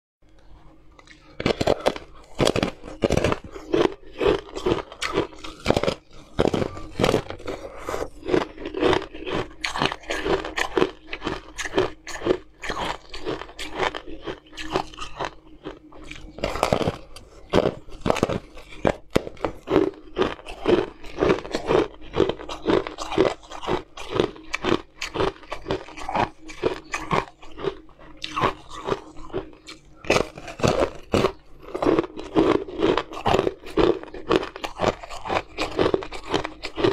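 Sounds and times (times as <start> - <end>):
chewing ice pieces: 0.6 - 36.9
ice crunching between teeth: 0.9 - 36.9.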